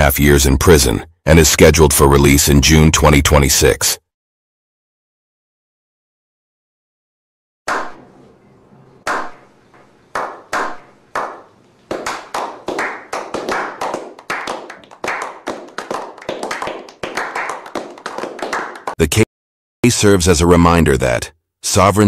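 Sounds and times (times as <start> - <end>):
group of people clapping: 10.1 - 19.0.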